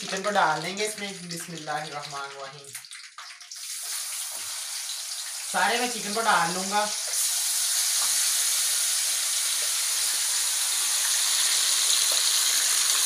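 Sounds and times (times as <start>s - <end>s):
chicken sizzling in a wok: 3.5s - 13.0s.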